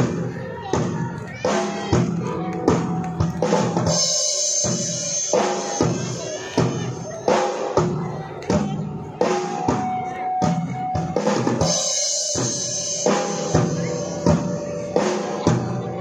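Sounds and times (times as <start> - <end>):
drum kit beat: 0.0 - 16.0
rock band playing: 1.4 - 16.0.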